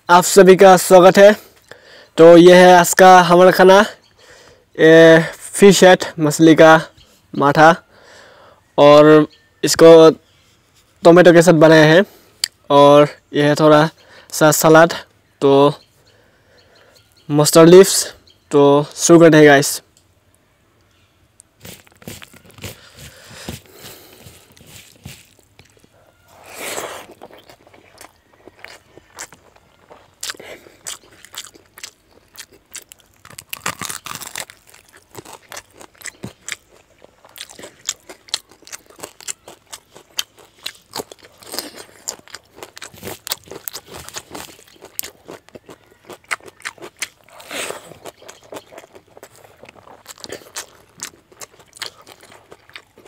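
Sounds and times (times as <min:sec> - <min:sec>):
fingers mixing wet rice: 0:21.4 - 0:30.4
chewing and crunching: 0:21.4 - 0:53.0.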